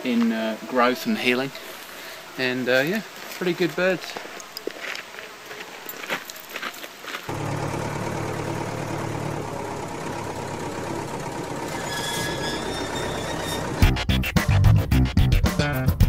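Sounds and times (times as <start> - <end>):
gondola mechanical hum and rumble: 7.3 - 14.0.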